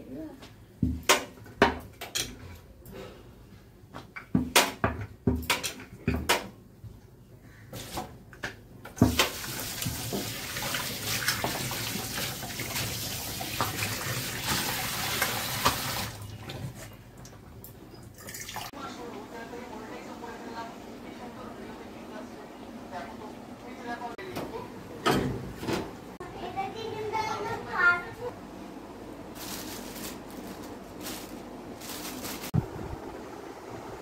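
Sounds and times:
running water: 0:09.3 - 0:16.8, 0:18.0 - 0:18.8.

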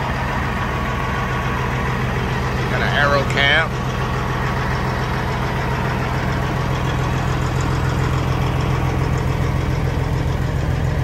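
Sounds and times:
diesel truck engine idling: 0:00.0 - 0:11.0.

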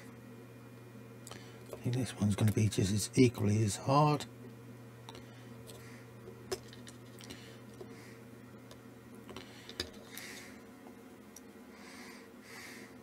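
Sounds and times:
low steady hum: 0:00.0 - 0:13.0
soft breaths: 0:11.7 - 0:13.0.

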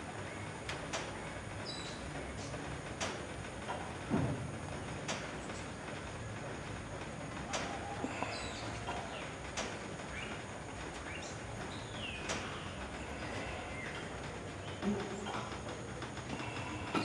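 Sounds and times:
outdoor noise bed: 0:00.0 - 0:17.0
small birds chirping: 0:01.6 - 0:02.6, 0:08.2 - 0:09.4, 0:10.0 - 0:15.6.

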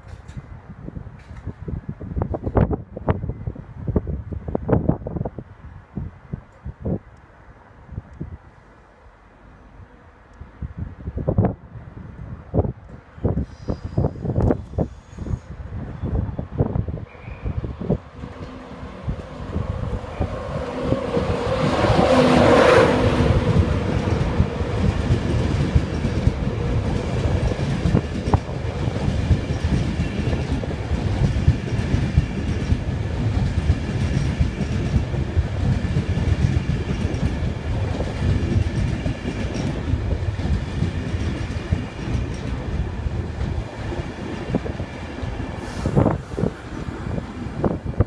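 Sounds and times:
electric locomotive passing: 0:02.0 - 0:48.0
train coaches rumbling by: 0:07.7 - 0:48.0.

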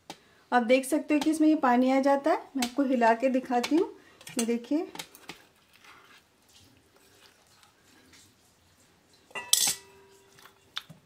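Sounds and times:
liquid sloshing in bowl: 0:05.1 - 0:10.7
glass bowl clink: 0:09.3 - 0:10.5.

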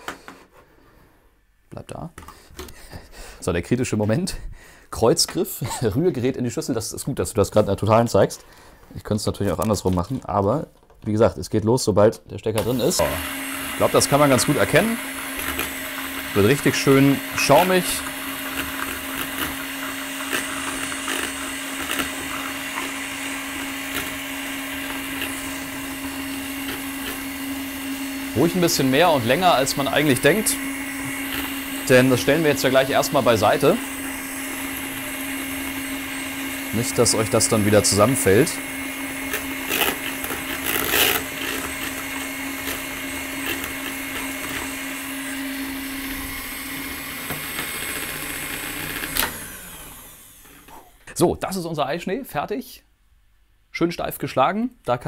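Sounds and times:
electric hand mixer whirring: 0:12.6 - 0:51.1.

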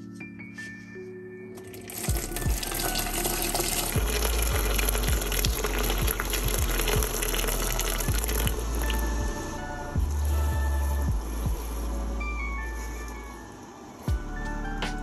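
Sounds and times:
water pouring into a metal pot: 0:01.6 - 0:09.0.

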